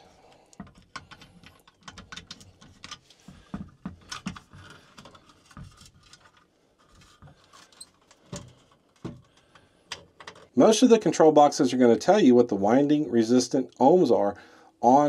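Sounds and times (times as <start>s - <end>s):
wire leads clicking and rubbing: 0.0s - 10.6s.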